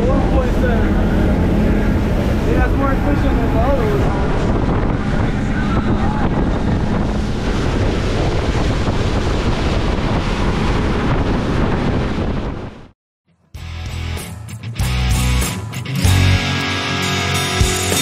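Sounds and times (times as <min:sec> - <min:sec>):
outboard motors droning: 0:00.0 - 0:12.2
rushing spray and wake water: 0:00.0 - 0:12.9
wind buffeting microphone: 0:00.0 - 0:13.0.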